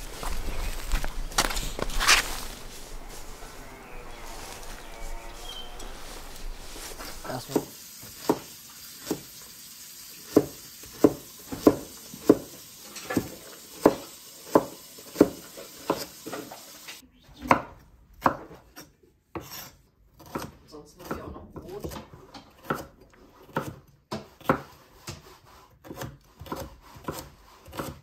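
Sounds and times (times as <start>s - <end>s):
knife chopping on cutting board: 7.5s - 9.3s, 10.3s - 12.6s, 13.2s - 16.1s, 19.4s - 28.0s.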